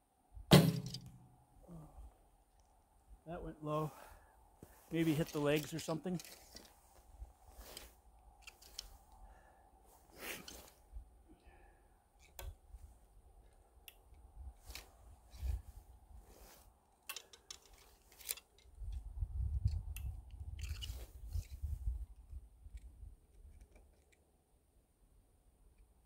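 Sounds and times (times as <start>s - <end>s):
clicks and crunches on snow: 4.6s - 9.0s, 9.9s - 10.8s.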